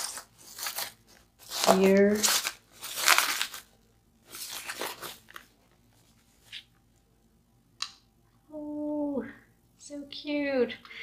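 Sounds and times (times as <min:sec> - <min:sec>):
wrapping rustling and crinkling: 0:00.0 - 0:06.8.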